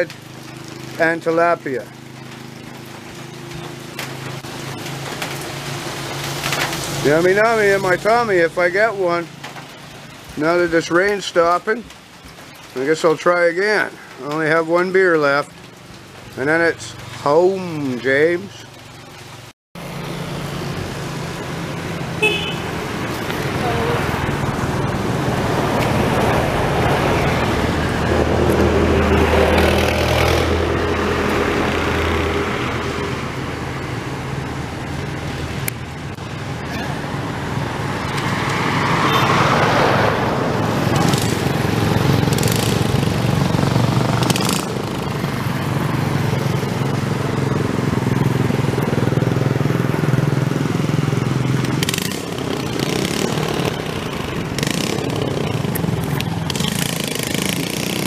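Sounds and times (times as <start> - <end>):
small engine running: 54.6 - 58.0.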